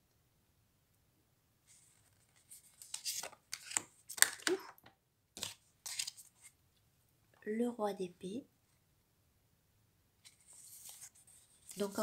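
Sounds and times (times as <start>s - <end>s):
cards scraping and slapping: 2.0s - 4.7s, 5.4s - 6.5s.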